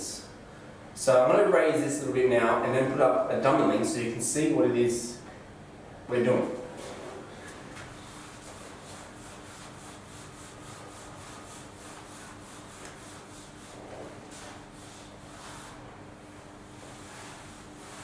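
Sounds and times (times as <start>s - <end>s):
eraser rubbing on whiteboard: 8.0s - 15.9s, 16.7s - 18.0s.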